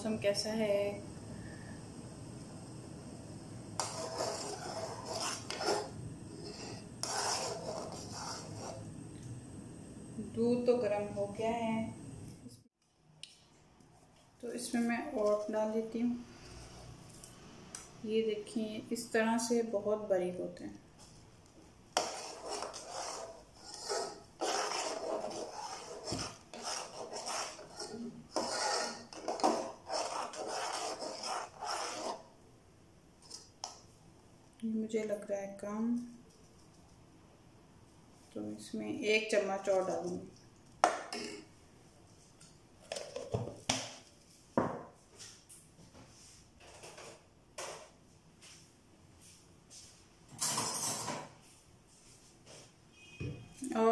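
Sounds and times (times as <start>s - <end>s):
metal spoon scraping saucepan: 3.8s - 8.9s, 22.0s - 32.2s.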